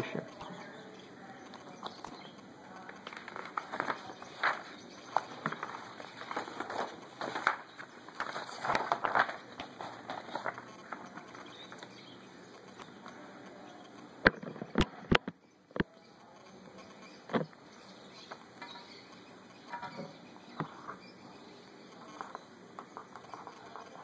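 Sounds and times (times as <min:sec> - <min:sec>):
paper rustling and crackling: 0:02.9 - 0:12.1.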